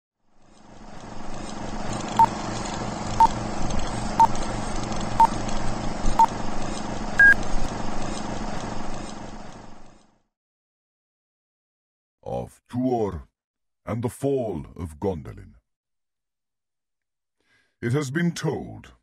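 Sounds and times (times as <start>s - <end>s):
low hum: 0.3s - 10.2s
short beeps: 7.2s - 7.4s.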